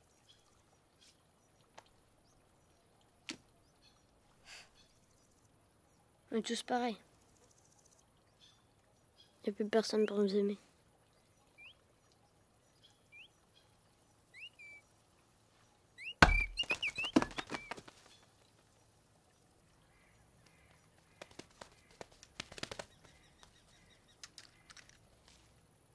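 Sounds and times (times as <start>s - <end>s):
small birds chirping: 0.0s - 25.9s
sudden thump: 16.2s - 17.4s
light clicks and ticks: 23.4s - 25.5s.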